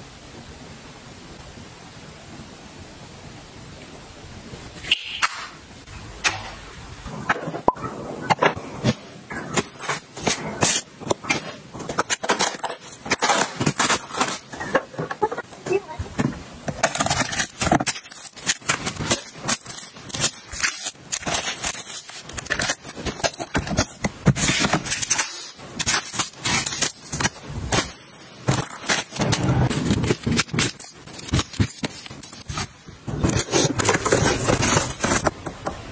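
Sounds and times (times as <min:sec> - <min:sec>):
plastic film crinkling: 0:08.8 - 0:35.7.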